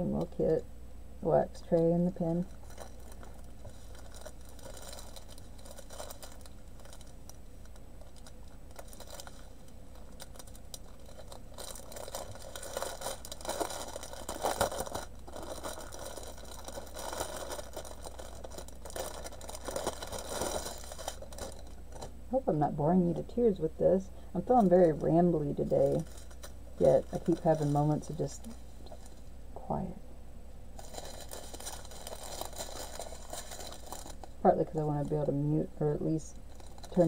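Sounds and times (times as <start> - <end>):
faint steady hum: 0.0 - 37.0
plastic bags crinkling: 1.6 - 22.2, 24.4 - 29.3, 30.7 - 37.0
tiny beads rattling: 8.0 - 22.1, 30.8 - 34.4.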